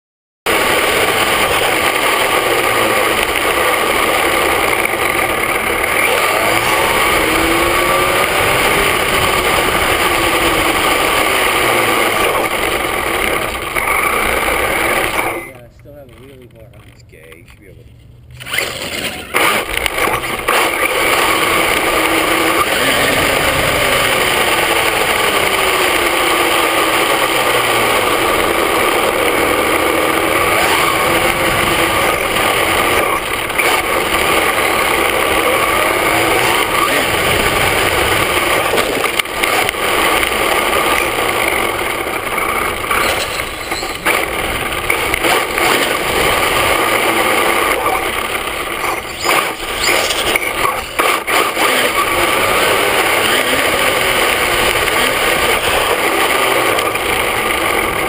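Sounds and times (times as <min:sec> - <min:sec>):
tyre and drivetrain rush: 0:00.4 - 0:58.0
electric motor whine: 0:00.5 - 0:15.6, 0:18.4 - 0:58.0.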